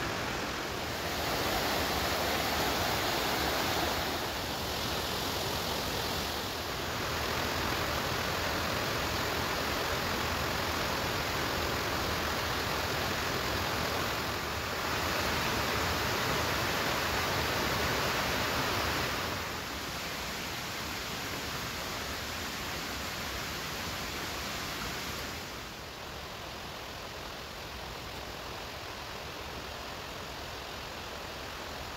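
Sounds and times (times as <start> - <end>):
mountain stream rushing: 0.0 - 31.9.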